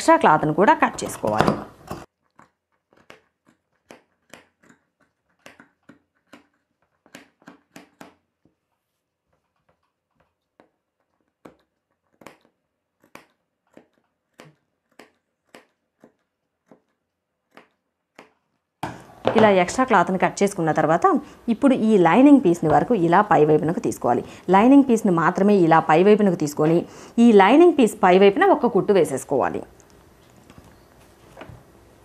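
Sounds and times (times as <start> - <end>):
shears snipping fabric: 10.6 - 18.4.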